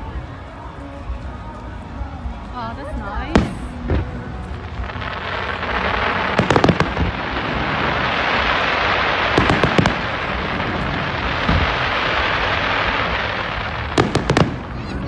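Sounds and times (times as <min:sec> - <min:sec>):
fireworks bangs: 0:03.2 - 0:15.0.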